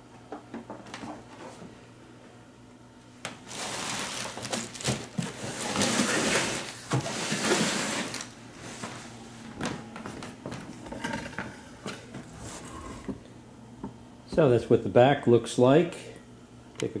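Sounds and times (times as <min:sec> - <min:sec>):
plastic bag crinkling: 0:03.5 - 0:06.8.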